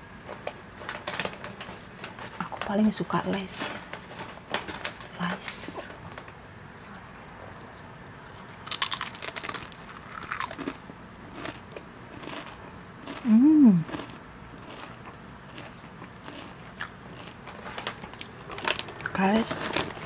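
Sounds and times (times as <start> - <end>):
crunching crisp snack: 8.1 - 20.0
quiet chewing: 10.2 - 20.0
person humming: 13.2 - 13.9.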